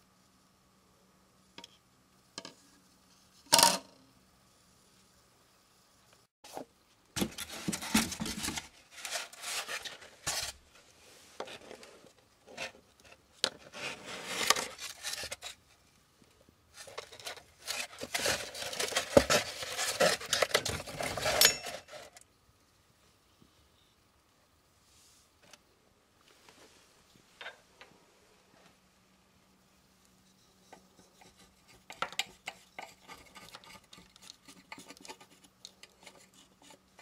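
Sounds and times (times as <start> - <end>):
scraping and rubbing: 6.4 - 15.8, 16.7 - 22.2, 30.3 - 37.0.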